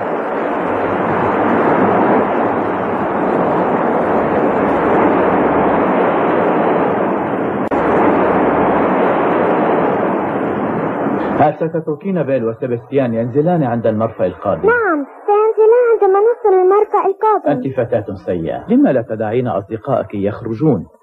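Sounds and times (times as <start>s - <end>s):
sea water rushing against bow: 0.0s - 11.6s.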